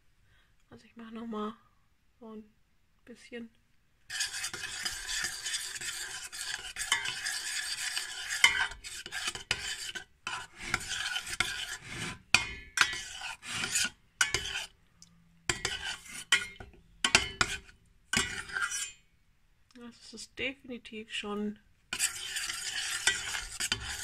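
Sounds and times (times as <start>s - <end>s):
utensil scraping a metal pot: 4.1s - 14.8s, 15.5s - 19.1s, 21.9s - 24.0s.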